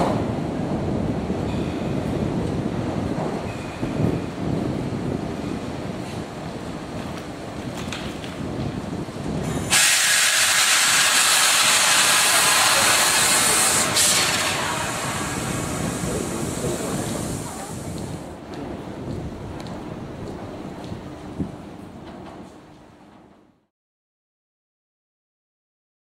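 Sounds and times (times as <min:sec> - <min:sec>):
train air system hissing: 0:09.4 - 0:18.3.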